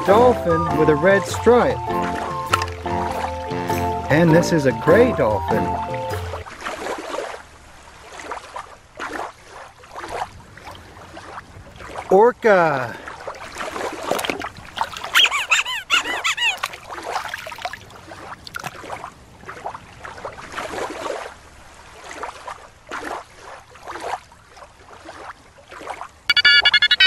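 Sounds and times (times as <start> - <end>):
killer whale noisy calls: 15.0 - 16.8.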